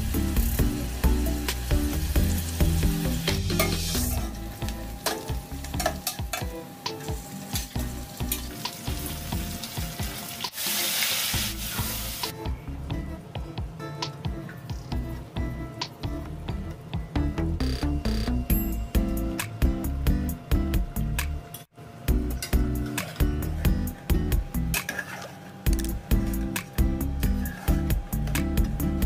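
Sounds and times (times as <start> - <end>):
food sizzling in hot oil: 0.0 - 6.4, 7.0 - 12.3
background music: 0.0 - 25.1, 25.7 - 29.0
spoon scraping a metal pot: 24.8 - 25.5.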